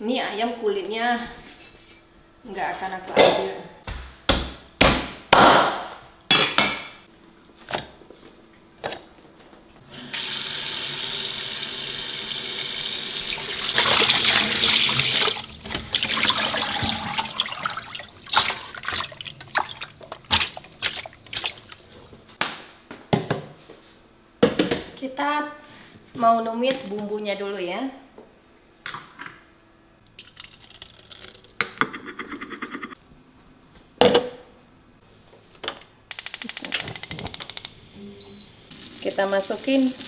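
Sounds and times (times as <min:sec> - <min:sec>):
water splashing and sloshing: 0:13.5 - 0:22.4.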